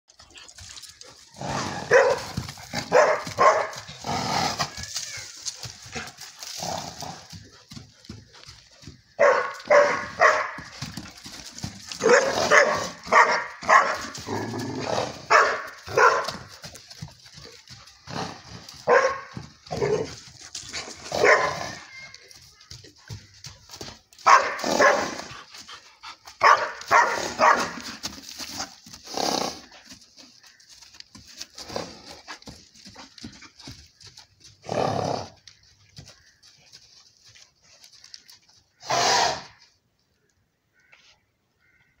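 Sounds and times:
small dog barking: 1.9 - 2.3, 2.9 - 3.8, 9.2 - 10.6, 12.0 - 14.1, 15.3 - 16.4, 18.8 - 20.1, 21.1 - 22.0, 24.2 - 25.2, 26.4 - 27.8.

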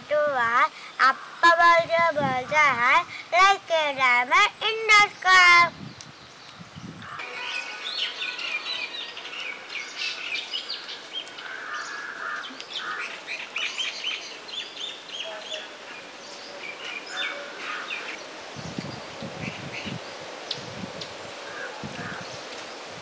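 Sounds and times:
birds chirping: 0.0 - 23.0
low bird calls: 5.9 - 22.8.

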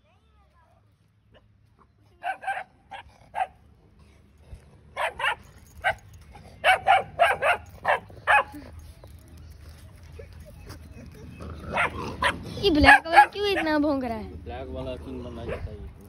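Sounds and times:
dog barking: 2.2 - 3.6, 5.0 - 6.0, 6.6 - 8.6, 11.7 - 13.7.

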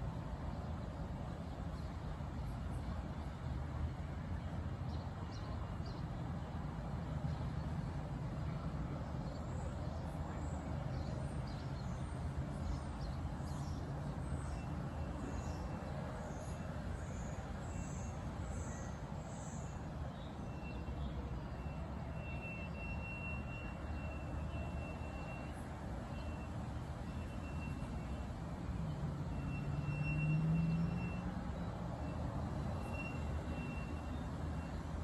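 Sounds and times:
songbirds chirping: 8.5 - 21.6.

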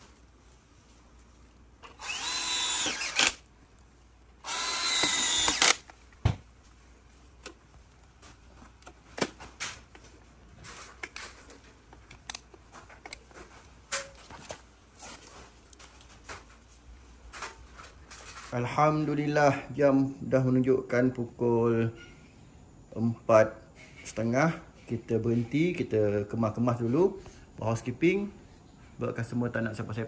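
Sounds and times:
cordless drill motor whine: 1.8 - 3.4, 4.4 - 5.9.

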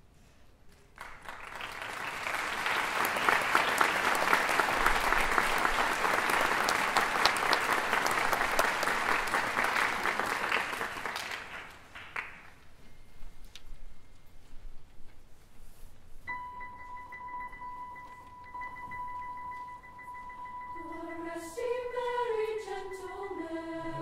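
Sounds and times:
audience applauding: 0.9 - 12.6.

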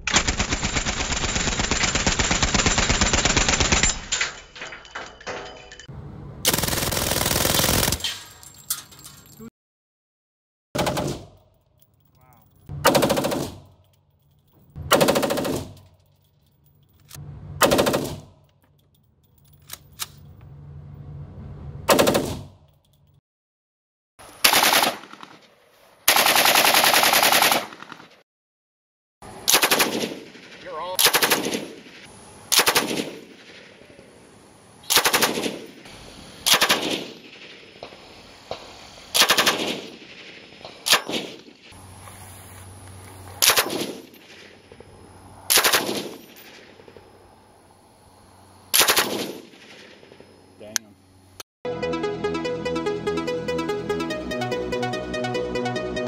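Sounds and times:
rifle automatic bursts: 0.0 - 4.0, 6.5 - 8.0, 12.8 - 13.6, 14.9 - 15.8, 24.4 - 25.4, 26.1 - 28.1, 29.5 - 31.8, 32.5 - 33.6, 34.9 - 35.8, 36.4 - 37.4, 39.1 - 40.1, 45.5 - 46.6, 48.7 - 49.6
machine gun bursts: 0.0 - 4.1, 6.5 - 8.1, 24.4 - 25.3, 26.1 - 28.0, 34.9 - 35.7, 36.4 - 37.3, 39.1 - 40.0.

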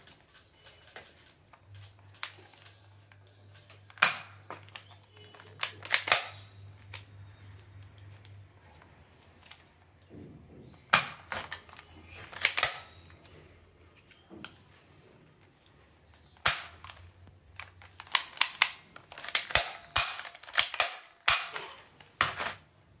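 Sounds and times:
toy pistol plastic clicks: 3.9 - 7.1, 10.9 - 13.0, 16.3 - 22.6.

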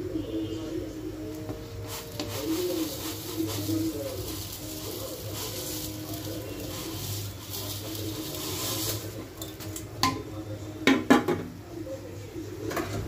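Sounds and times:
boiling water hissing: 1.6 - 10.1.

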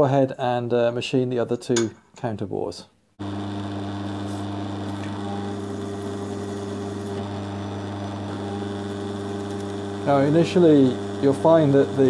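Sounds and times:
drill press humming: 3.2 - 12.0
cutter cutting aluminium: 4.5 - 12.0.

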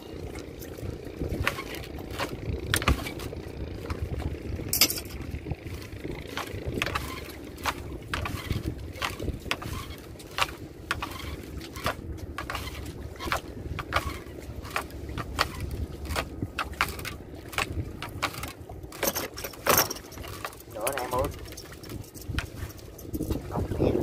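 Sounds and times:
low steady rumble: 0.0 - 24.0
net knocking against hull: 1.2 - 23.5.

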